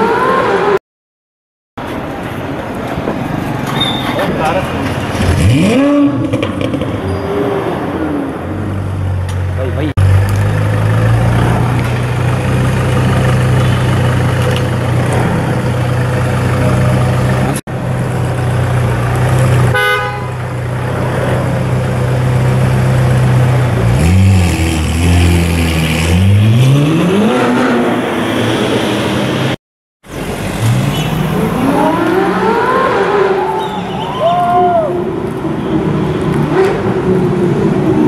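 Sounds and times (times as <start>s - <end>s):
sports car engine idling and revving: 4.8s - 28.1s.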